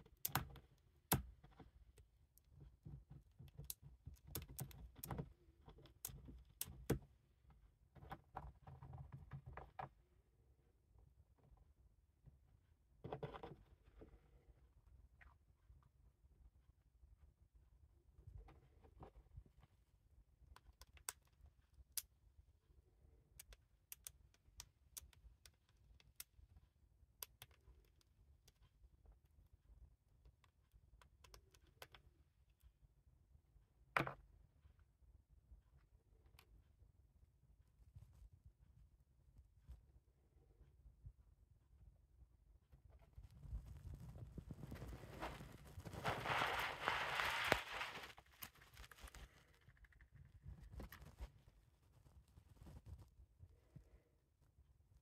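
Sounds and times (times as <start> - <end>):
hamster gnawing peanut shell: 43.1 - 53.0.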